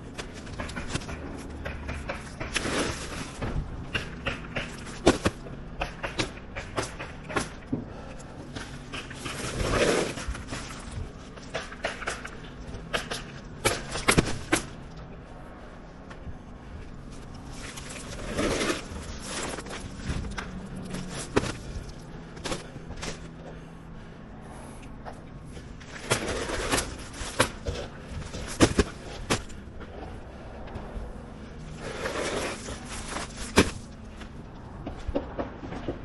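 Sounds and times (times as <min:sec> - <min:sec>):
roofing work knocks and scraping: 0:00.0 - 0:15.1, 0:17.0 - 0:23.7, 0:25.0 - 0:36.0.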